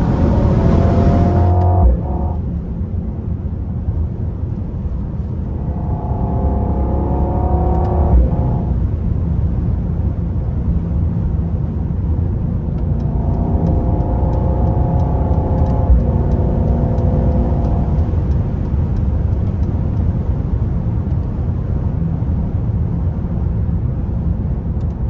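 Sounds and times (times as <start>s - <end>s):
car engine accelerating: 0.0s - 2.8s, 4.5s - 20.3s.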